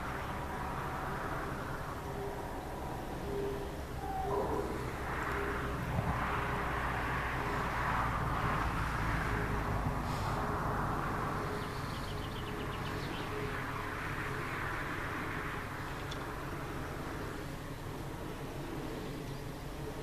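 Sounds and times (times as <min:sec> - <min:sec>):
faint steady hum and rumble: 0:00.0 - 0:20.0
wind turbine blades swishing: 0:00.0 - 0:20.0
faint bird chirps: 0:03.2 - 0:04.8.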